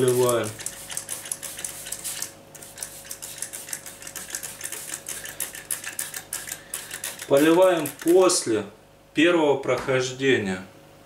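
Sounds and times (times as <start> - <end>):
spray bottle hissing sprays: 0.0 - 8.4.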